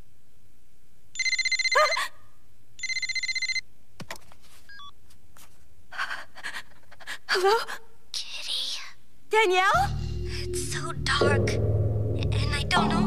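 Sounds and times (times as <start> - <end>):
telephone ringing: 1.2 - 1.8, 2.8 - 3.6.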